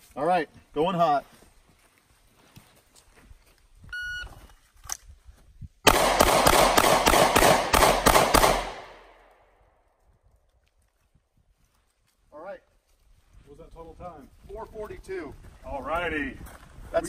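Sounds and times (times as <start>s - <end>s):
pistol shots: 5.9s - 9.2s.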